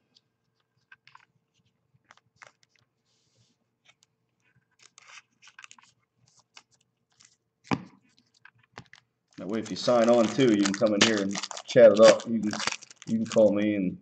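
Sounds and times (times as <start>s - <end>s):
trading cards clicking and rustling: 2.0s - 2.9s, 8.2s - 13.6s.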